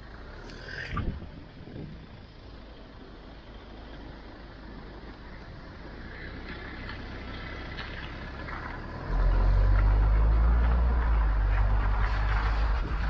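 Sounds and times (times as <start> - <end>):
car tyres hissing on wet road: 5.8 - 13.0.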